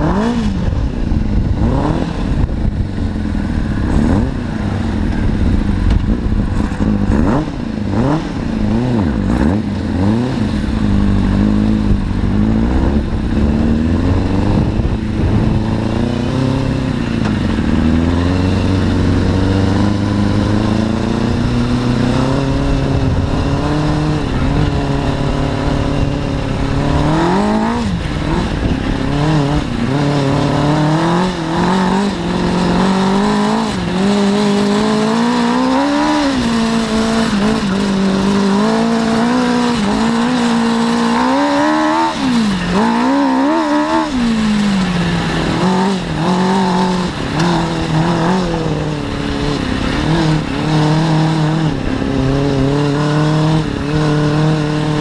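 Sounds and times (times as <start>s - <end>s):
motorcycle engine revving: 0.0s - 55.0s.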